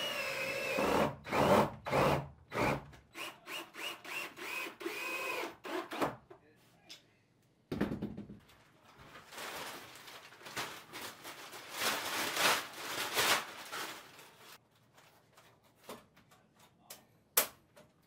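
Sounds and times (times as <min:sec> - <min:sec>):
plastic sheet rustling and crinkling: 0:08.4 - 0:16.2.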